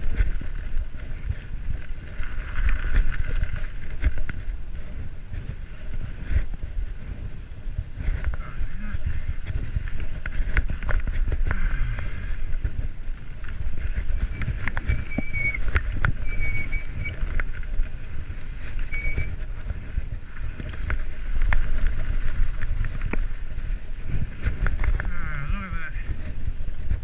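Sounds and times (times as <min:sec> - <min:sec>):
road noise: 0:00.0 - 0:27.0
wind rumbling on microphone: 0:00.0 - 0:27.0
high-pitched squeaks: 0:14.3 - 0:17.2, 0:18.9 - 0:19.4.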